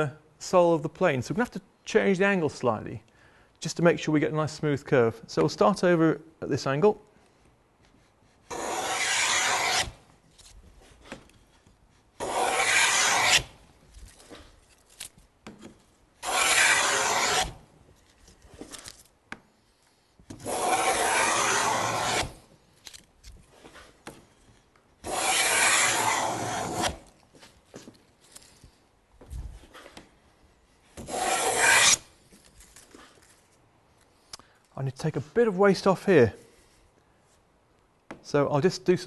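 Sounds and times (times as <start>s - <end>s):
wooden plane cutting shavings: 8.5s - 10.0s, 12.2s - 13.6s, 16.2s - 17.6s, 20.4s - 22.4s, 25.0s - 27.1s, 31.0s - 32.1s.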